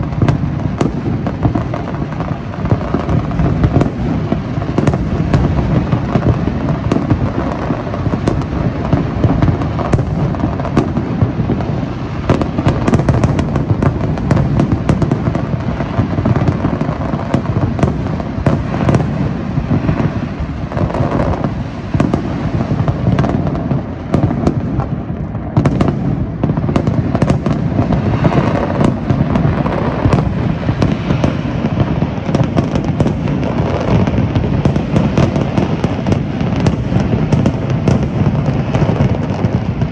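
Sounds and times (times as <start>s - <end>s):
fireworks bursts and crackling: 0.0s - 39.9s.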